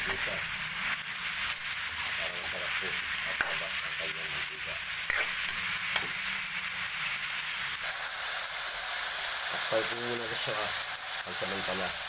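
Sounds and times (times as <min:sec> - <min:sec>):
meat sizzling in a wok: 0:00.0 - 0:12.0
metal spatula scraping a pan: 0:05.0 - 0:06.3.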